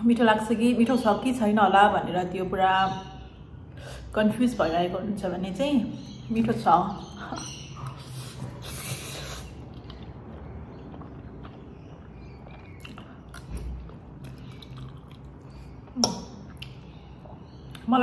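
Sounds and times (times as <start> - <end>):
wet chewing clicks: 7.8 - 17.9.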